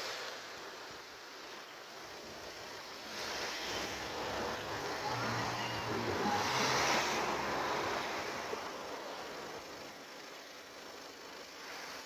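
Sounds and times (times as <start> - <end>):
motor vehicle passing: 2.3 - 9.9.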